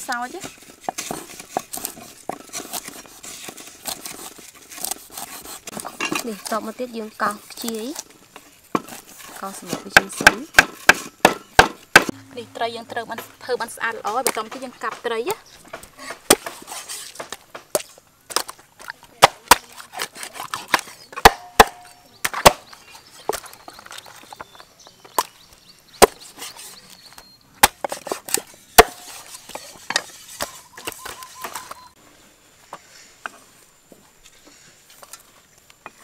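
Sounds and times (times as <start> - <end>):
cleaver chopping fish on wood: 9.7 - 12.1, 19.2 - 22.7, 26.0 - 26.4, 27.6 - 29.2.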